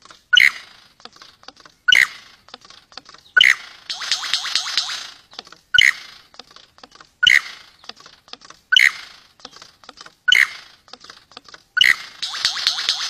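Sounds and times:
quick dry clicks: 0.0s - 13.0s
lyrebird loud sharp calls: 1.9s - 2.6s, 3.2s - 6.4s, 7.2s - 8.1s, 8.7s - 11.1s, 11.8s - 13.0s.

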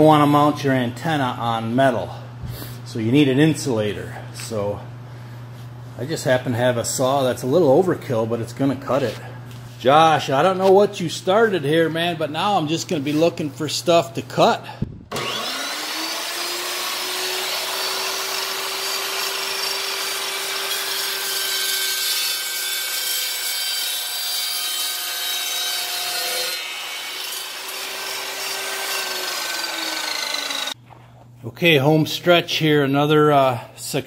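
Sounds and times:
chop saw cutting plastic pipe: 15.1s - 30.8s.

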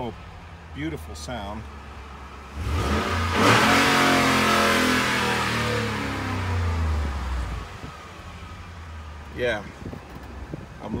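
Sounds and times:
truck engine revving: 2.5s - 7.9s.

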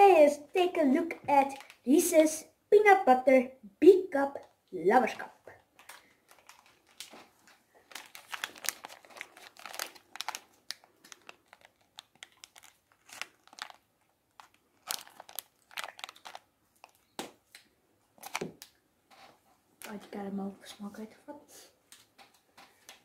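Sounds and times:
candy wrapper crinkling: 1.3s - 2.0s, 5.7s - 17.6s, 18.2s - 18.8s.

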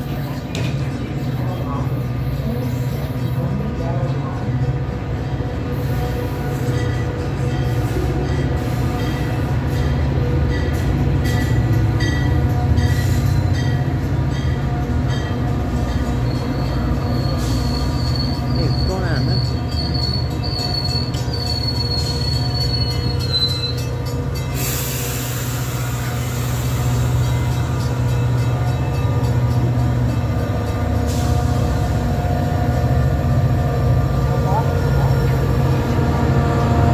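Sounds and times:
diesel locomotive engine drone: 0.0s - 36.9s
high thin wheel squeal: 16.2s - 23.9s.

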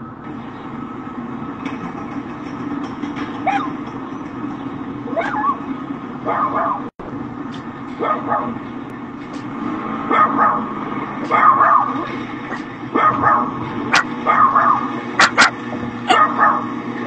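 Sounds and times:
dog barking: 3.4s - 3.8s, 5.1s - 5.6s, 6.2s - 6.9s, 8.0s - 8.6s, 10.1s - 16.8s.

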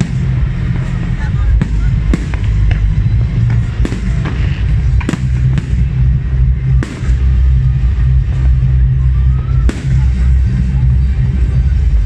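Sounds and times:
fireworks bursting in bangs: 0.0s - 0.7s, 1.5s - 7.6s, 9.6s - 10.6s
loud music with heavy bass: 0.0s - 12.0s.

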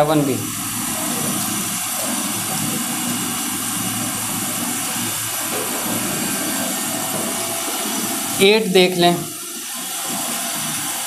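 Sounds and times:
steady rushing noise: 5.3s - 9.5s.

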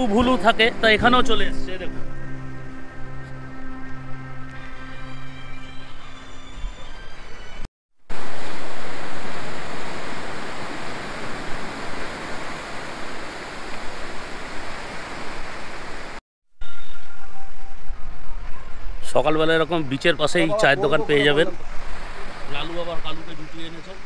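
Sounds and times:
surf washing onto beach: 8.1s - 16.2s.

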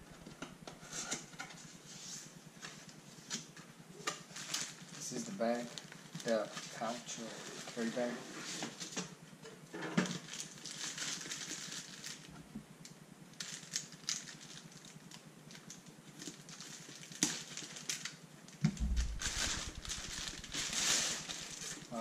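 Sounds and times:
plastic bag crinkling: 10.1s - 12.3s, 18.8s - 22.0s
dull thump: 18.6s - 20.4s.

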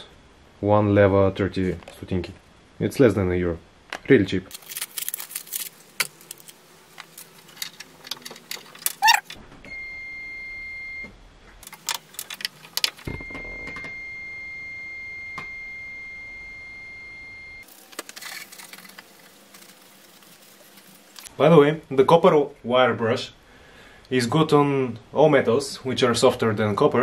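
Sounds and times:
plastic packaging crinkling: 4.5s - 9.3s, 17.6s - 21.3s
short squeak: 9.0s - 9.3s.

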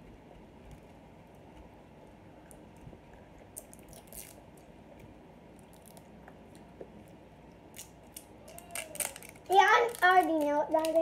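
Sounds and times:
plastic wrapper crinkling: 8.1s - 11.0s.

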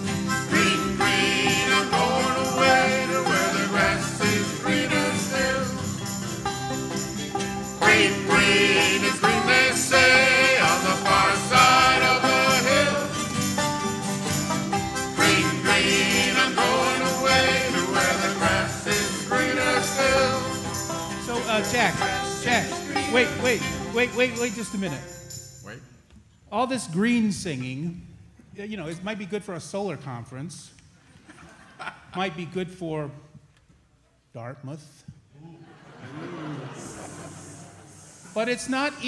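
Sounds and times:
folk band playing: 0.0s - 25.1s
upright bass: 0.0s - 25.1s
banjo: 0.0s - 25.2s
guitars: 0.0s - 25.4s.

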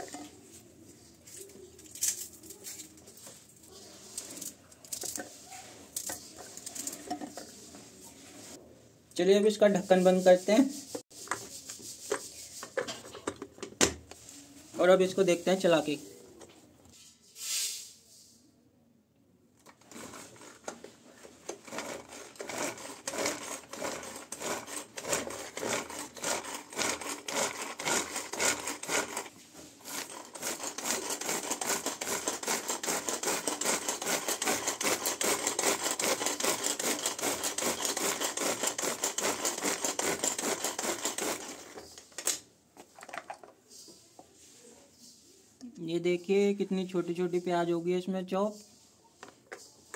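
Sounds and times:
vegetable chopper clattering: 19.6s - 20.8s, 21.4s - 42.4s.

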